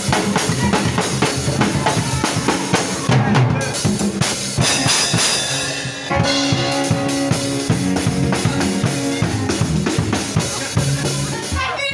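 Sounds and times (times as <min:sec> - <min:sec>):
backing song chords: 0:00.0 - 0:11.5
drum kit beat: 0:00.0 - 0:11.9
cymbal crash: 0:04.3 - 0:08.9.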